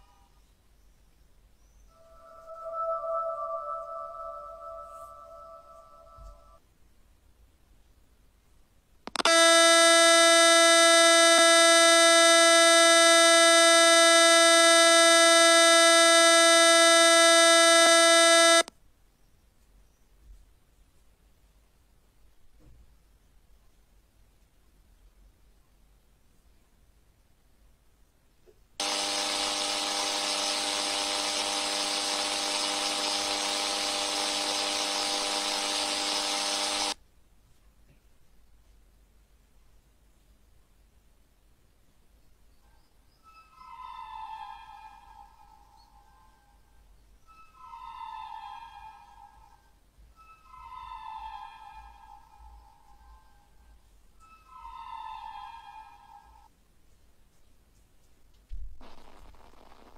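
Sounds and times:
buzzing electronic tone: 0:01.9 - 0:06.6, 0:09.1 - 0:18.7, 0:28.8 - 0:37.0, 0:58.8 - 0:59.9
harsh distorted drone: 0:28.8 - 0:37.0, 0:58.8 - 0:59.9.

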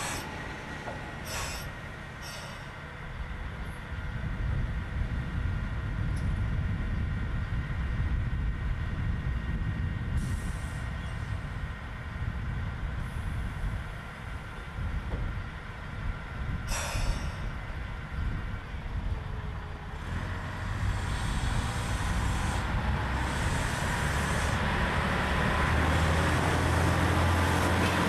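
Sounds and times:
diesel engine idling: 0:00.0 - 0:05.9, 0:10.2 - 0:28.0
air hisses: 0:01.2 - 0:02.7, 0:20.7 - 0:24.6.

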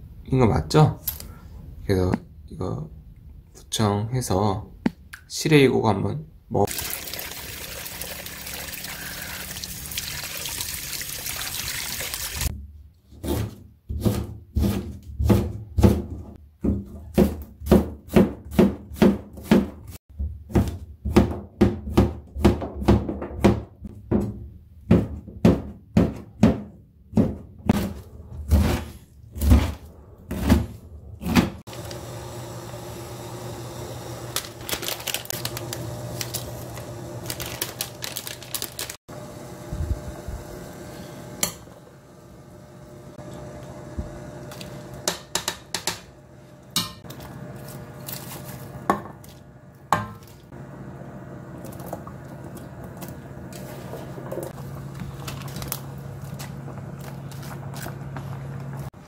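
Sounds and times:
water pouring and splashing: 0:06.7 - 0:12.5
knife chopping on plastic board: 0:13.4 - 0:19.8.

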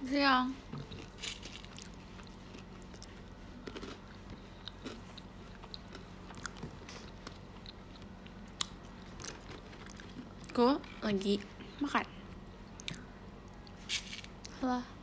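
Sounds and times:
low electrical hum: 0:00.0 - 0:15.0
faint chewing crunches: 0:00.9 - 0:11.6.

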